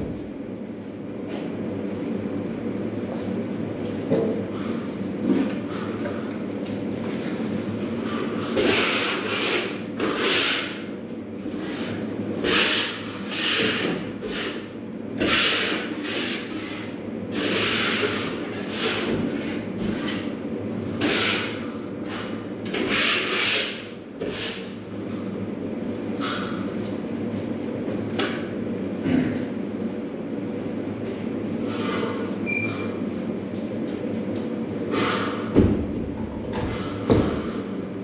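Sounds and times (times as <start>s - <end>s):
tool scraping plasterboard wall: 8.0s - 10.9s, 11.5s - 20.3s, 21.0s - 24.7s, 31.6s - 32.3s, 34.9s - 35.5s.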